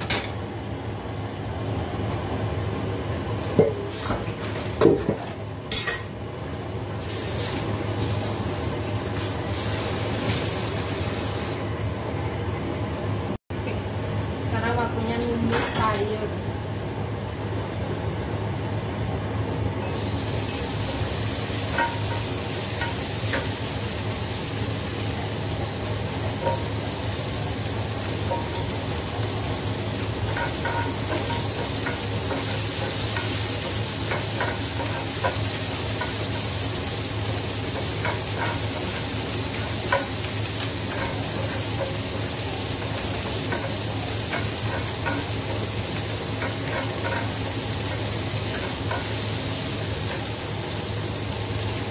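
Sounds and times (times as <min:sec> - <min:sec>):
vegetables sizzling in oil: 0:06.9 - 0:11.6, 0:19.8 - 0:51.9.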